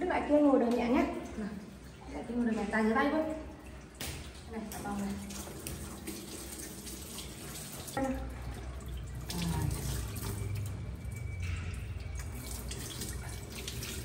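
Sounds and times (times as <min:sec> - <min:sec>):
tap water splashing into sink: 0:02.4 - 0:10.8.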